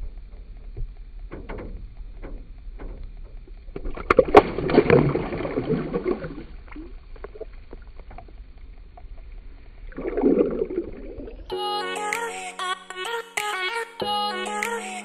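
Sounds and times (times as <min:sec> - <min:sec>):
water splashing and sloshing: 0:00.0 - 0:11.5.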